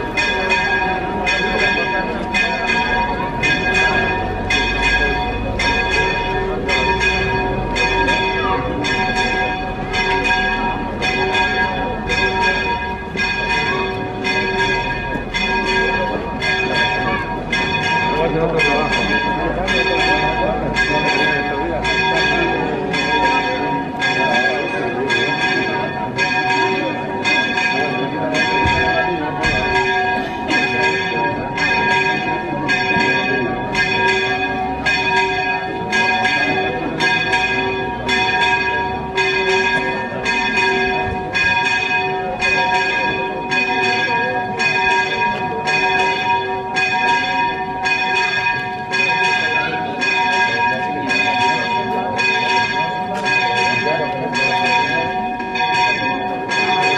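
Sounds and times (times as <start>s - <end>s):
church bell ringing: 0.0s - 56.9s.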